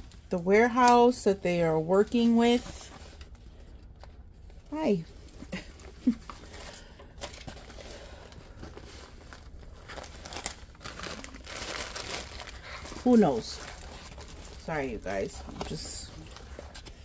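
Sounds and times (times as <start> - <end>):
plastic film crinkling: 4.3 - 17.0.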